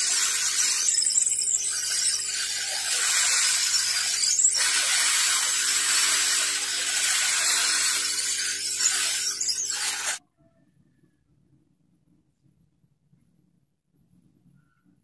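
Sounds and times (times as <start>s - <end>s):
heat tool hissing: 0.0s - 10.2s.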